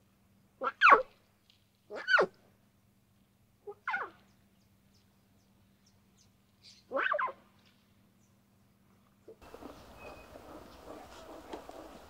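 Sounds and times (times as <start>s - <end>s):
lion cubs mewing: 9.4s - 12.0s.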